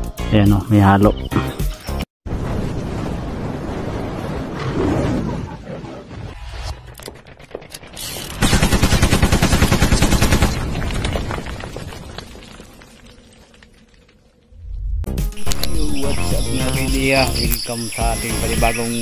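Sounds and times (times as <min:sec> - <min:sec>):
rumbling blast: 0:02.3 - 0:06.5
machine-gun fire: 0:08.4 - 0:10.8.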